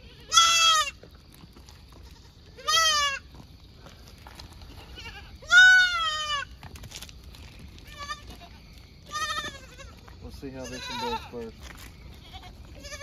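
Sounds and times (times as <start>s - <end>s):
goat bleating: 0.0s - 1.0s, 1.9s - 3.3s, 4.7s - 6.6s, 7.8s - 11.5s, 12.1s - 13.0s.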